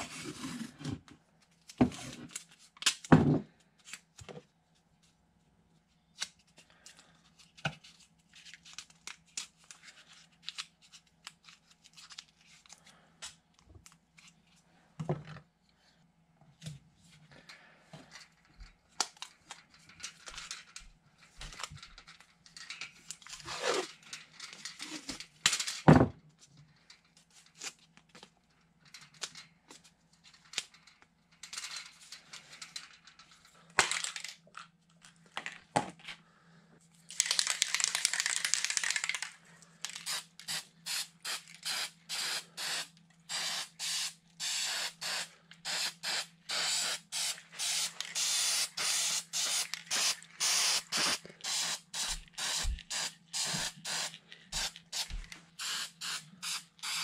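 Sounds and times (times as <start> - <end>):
aerosol spray can spraying: 40.0 - 57.0.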